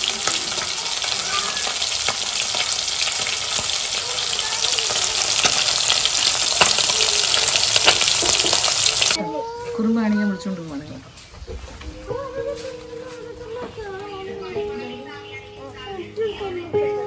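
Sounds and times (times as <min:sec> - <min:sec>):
fish frying in hot oil: 0:00.0 - 0:09.2.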